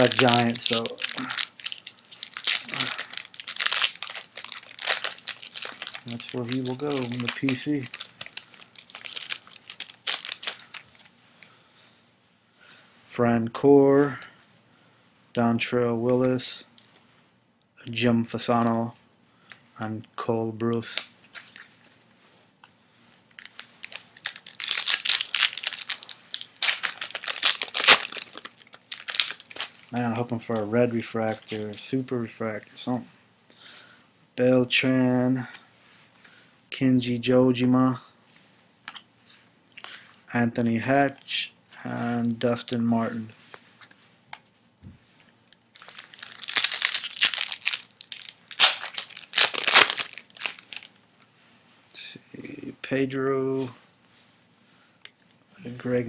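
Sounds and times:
foil wrapper crinkling and tearing: 0:00.0 - 0:11.1, 0:23.3 - 0:31.8, 0:45.7 - 0:51.0.

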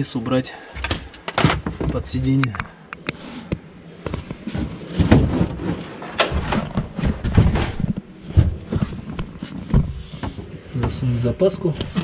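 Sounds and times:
heavy thuds: 0:03.6 - 0:11.0.

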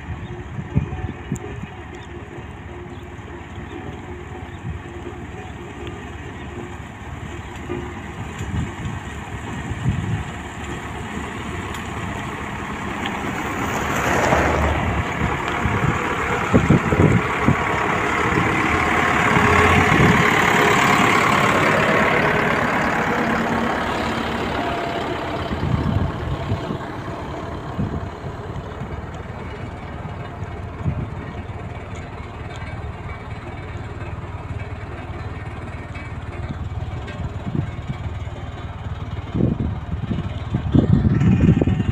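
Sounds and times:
diesel engine running: 0:00.0 - 0:41.9.

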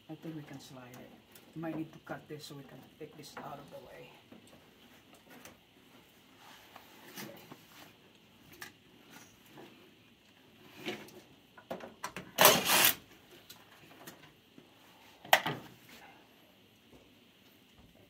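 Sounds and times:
cordless drill running: 0:12.4 - 0:13.0.

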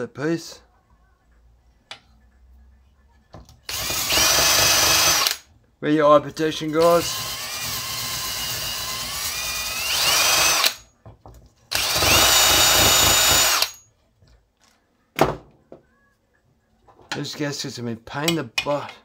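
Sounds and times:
drill spinning wire brush on metal: 0:03.7 - 0:05.4, 0:06.6 - 0:10.8, 0:11.7 - 0:13.8.

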